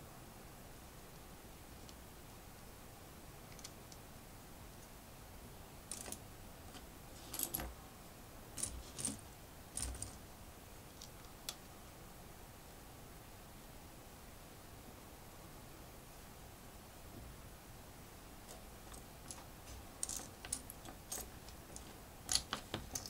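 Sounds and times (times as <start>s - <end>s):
plastic pieces clicking and clattering: 20.0s - 23.0s.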